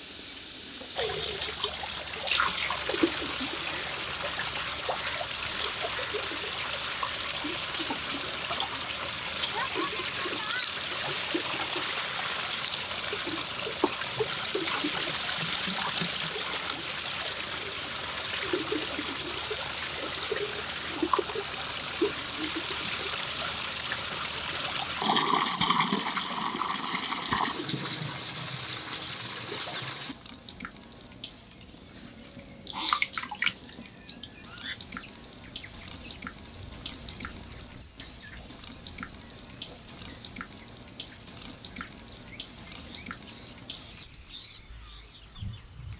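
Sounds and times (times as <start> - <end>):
water gushing onto wet ground: 0.5 - 31.5, 32.7 - 44.0
water running into stone basin: 0.8 - 31.8
liquid being poured: 0.8 - 31.9.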